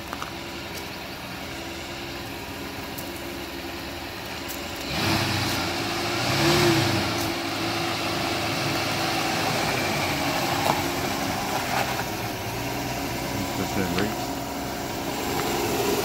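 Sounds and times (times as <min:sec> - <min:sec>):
truck engine running: 0:00.0 - 0:16.0
tyres rolling on gravel: 0:00.0 - 0:16.0.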